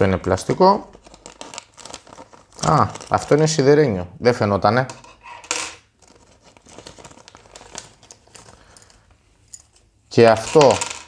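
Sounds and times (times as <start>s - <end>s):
plastic packaging crinkling: 0.3s - 3.5s, 6.0s - 8.8s.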